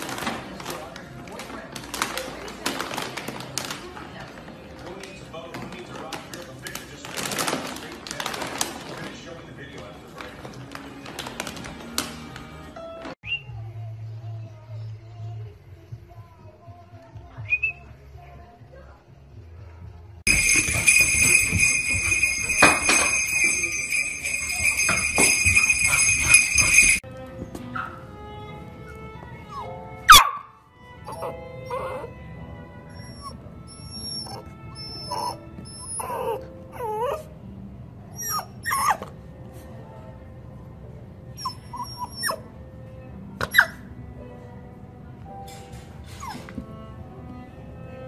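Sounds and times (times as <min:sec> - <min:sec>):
small bells jingling: 0:20.3 - 0:27.0
puppy yipping and barking: 0:30.1 - 0:30.5, 0:31.1 - 0:32.1, 0:32.9 - 0:37.2, 0:38.2 - 0:39.1, 0:41.4 - 0:42.5, 0:43.4 - 0:43.8.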